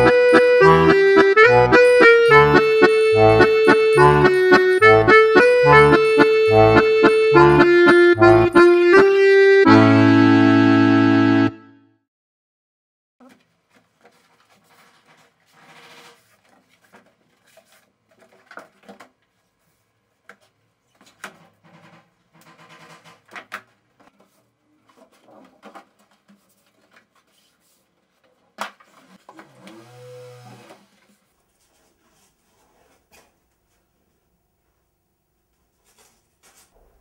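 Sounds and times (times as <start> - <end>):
paper and card rustling: 13.2 - 21.4, 24.0 - 29.3.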